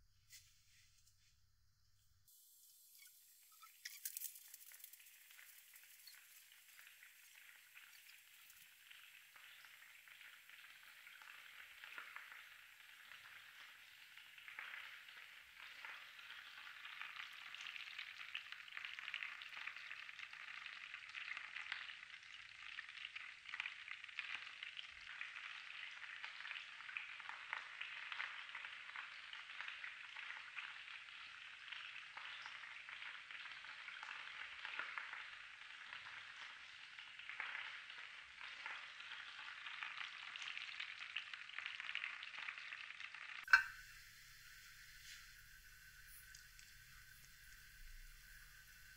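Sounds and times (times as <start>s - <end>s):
fat sizzling and crackling: 2.3s - 22.6s, 23.2s - 48.9s.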